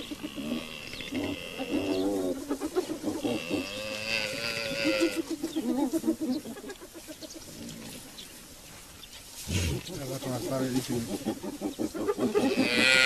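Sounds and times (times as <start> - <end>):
hyenas giggling and yelping: 0.0 - 3.8, 4.4 - 8.0, 10.9 - 13.0.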